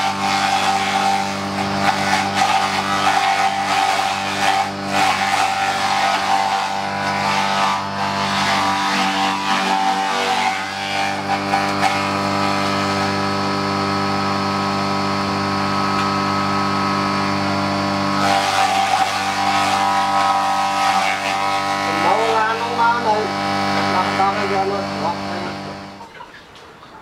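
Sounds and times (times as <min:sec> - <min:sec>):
motorized chopper running: 0:00.0 - 0:26.1.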